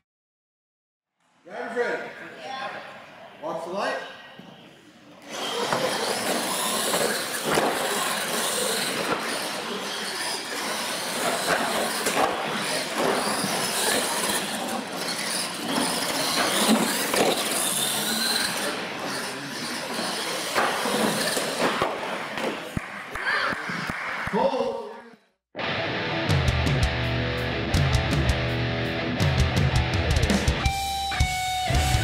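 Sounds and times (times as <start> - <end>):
toy truck motors and tyres rushing: 5.2 - 22.8
trucks thumping on ramps: 5.5 - 19.2.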